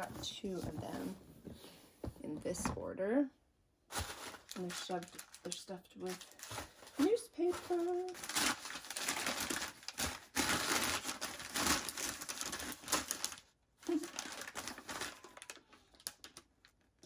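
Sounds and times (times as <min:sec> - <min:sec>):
newspaper crinkling and rustling: 0:03.9 - 0:16.8.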